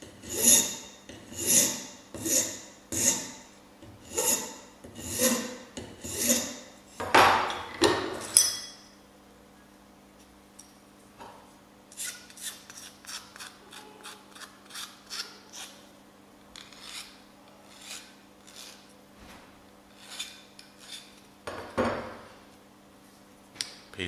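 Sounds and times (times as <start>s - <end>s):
file rasping on metal: 0.1s - 3.4s, 4.0s - 6.6s, 12.0s - 15.8s, 16.6s - 18.9s, 19.9s - 21.2s.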